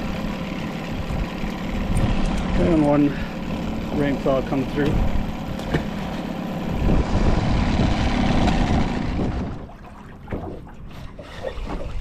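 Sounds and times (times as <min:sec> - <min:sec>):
water slapping metal boat: 0:00.0 - 0:12.0
wind buffeting microphone: 0:04.9 - 0:05.9, 0:06.5 - 0:12.0.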